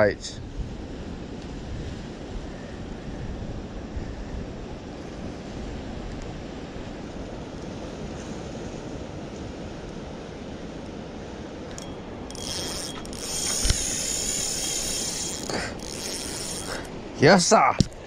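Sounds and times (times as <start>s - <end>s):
surf washing on shore: 0.0s - 12.3s
wind buffeting microphone: 0.3s - 18.0s.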